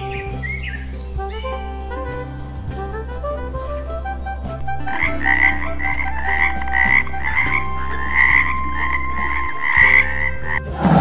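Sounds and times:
toad croaking: 4.8s - 11.0s
loud roar: 10.6s - 11.0s.

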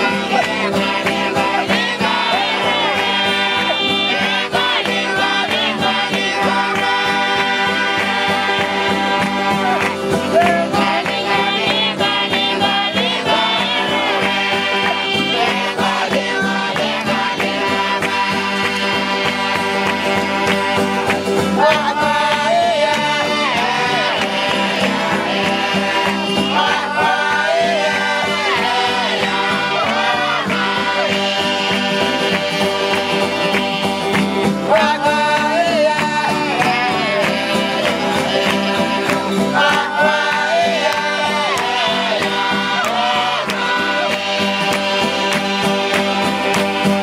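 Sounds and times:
strummed accompaniment: 0.0s - 47.0s
voices singing a folk song: 0.0s - 47.0s.

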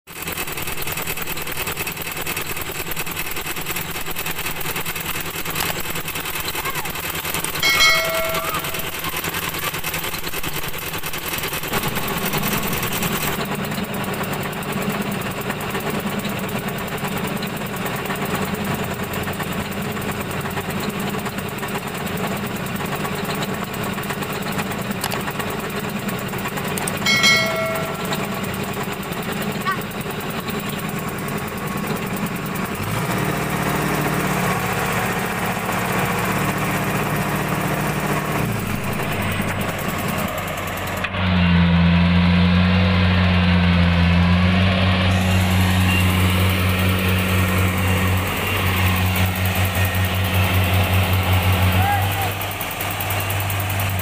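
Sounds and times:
diesel engines running: 0.1s - 54.0s
short chime: 7.6s - 9.1s, 27.1s - 28.5s.

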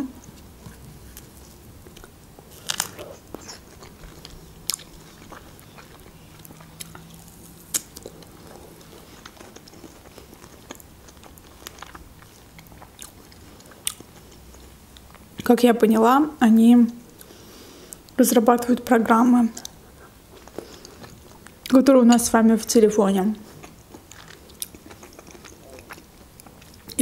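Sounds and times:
person chewing strawberries: 0.1s - 15.3s, 19.6s - 21.8s, 23.4s - 27.0s.

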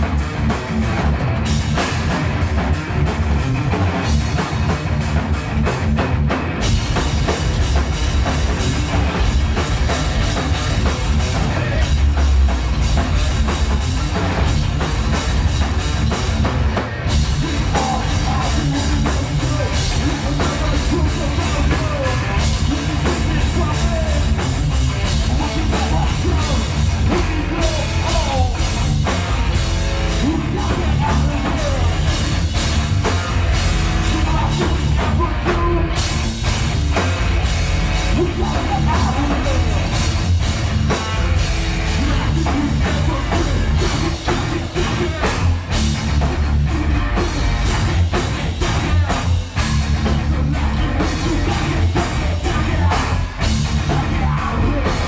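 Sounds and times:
heavy metal band playing live: 0.0s - 55.0s
pounding drum kit: 0.0s - 55.0s
person singing into a microphone: 17.4s - 24.4s, 30.2s - 32.0s, 38.1s - 39.8s, 50.4s - 55.0s.

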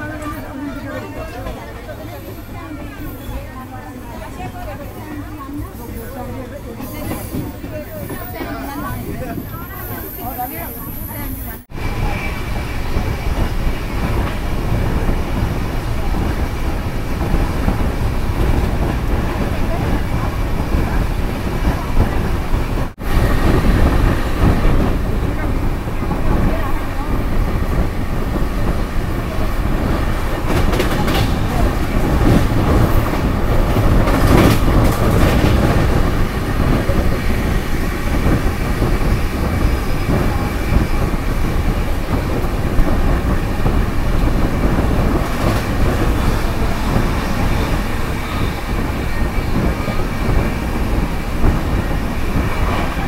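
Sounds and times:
train clatter: 0.0s - 53.0s
train wheels rumbling on rails: 0.0s - 53.0s.

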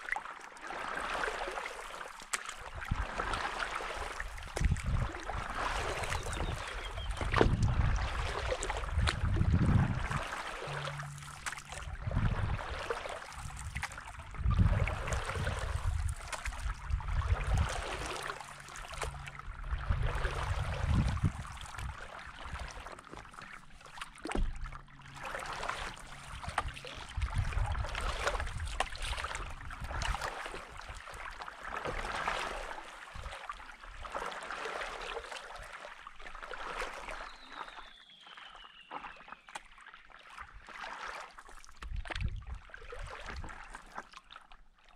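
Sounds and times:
paddle splashing in water: 0.0s - 44.9s
low rumbles: 7.0s - 22.6s.

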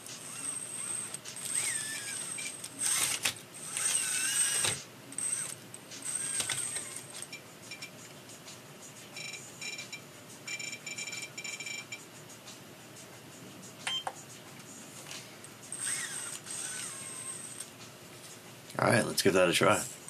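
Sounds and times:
small electric motor whirring: 0.1s - 7.1s, 15.7s - 17.7s.

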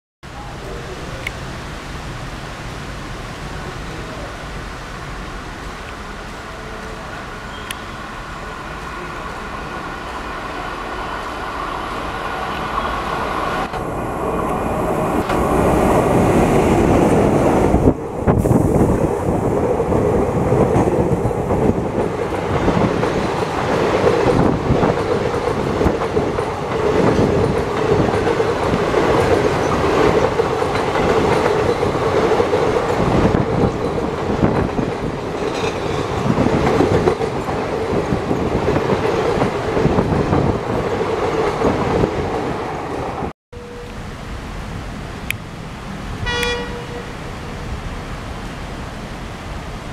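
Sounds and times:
train wheels clattering over rails: 15.2s - 43.2s.

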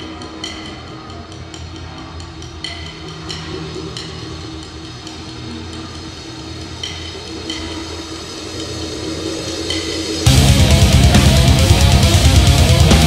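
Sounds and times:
low droning rumble: 10.3s - 13.0s.

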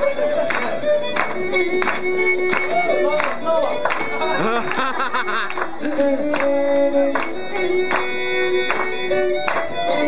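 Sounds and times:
traditional dance music: 0.0s - 10.0s.

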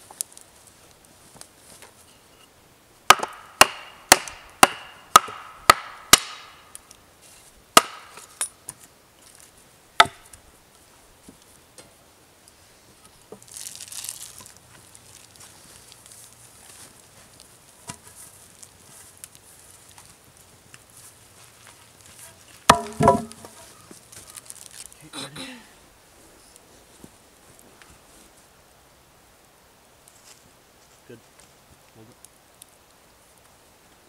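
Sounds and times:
rustle: 0.0s - 34.0s
hatchet chopping wooden pole: 3.1s - 6.6s, 7.8s - 8.5s, 10.0s - 10.3s, 22.7s - 23.6s.

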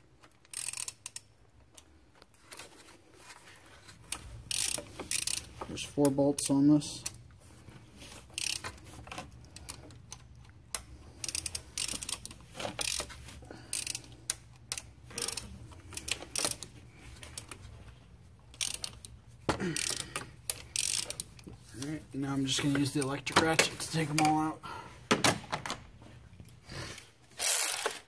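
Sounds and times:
hand ratchet clicking: 0.2s - 1.9s, 4.1s - 7.2s, 8.3s - 17.6s, 18.5s - 21.9s, 27.4s - 28.0s.

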